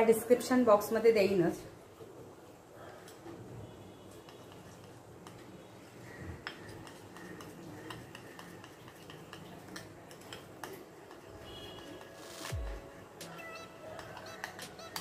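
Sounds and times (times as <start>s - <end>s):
spoon stirring milk: 4.1s - 15.0s
spoon tapping glass bowl: 6.4s - 12.2s, 13.9s - 15.0s.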